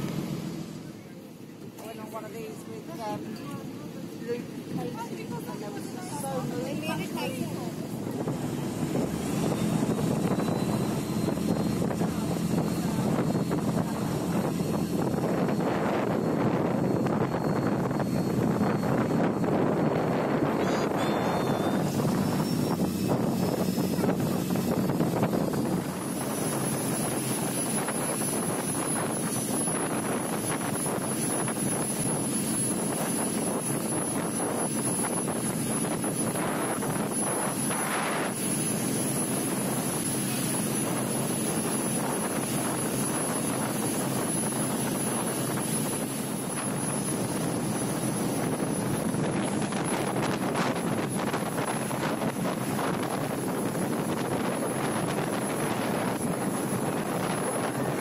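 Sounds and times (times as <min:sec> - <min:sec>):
wind and water rushing: 0:00.0 - 0:00.9, 0:01.9 - 0:58.0
speedboat engine drone: 0:00.0 - 0:58.0.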